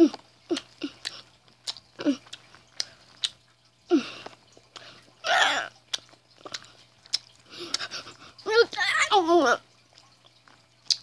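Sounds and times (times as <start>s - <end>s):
boy chewing candy: 0.0s - 11.0s
wet mouth clicks and smacks: 0.1s - 3.5s, 4.2s - 7.9s, 9.9s - 11.0s.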